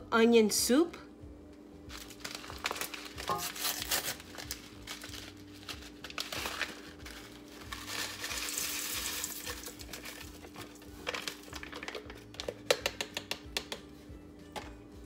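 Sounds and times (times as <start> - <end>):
paper packet crinkling: 1.9 - 12.4.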